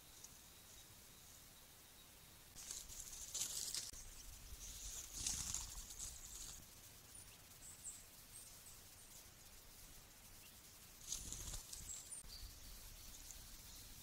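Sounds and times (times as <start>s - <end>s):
leaf litter rustling: 2.6s - 4.0s, 4.6s - 6.6s.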